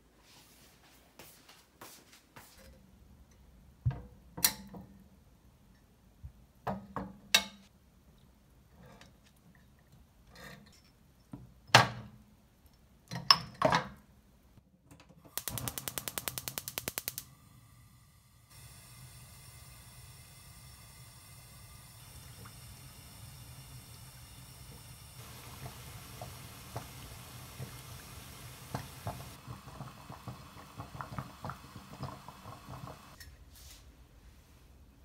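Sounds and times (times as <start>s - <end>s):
gas stove igniter clicking: 15.3s - 17.5s, 18.6s - 29.4s.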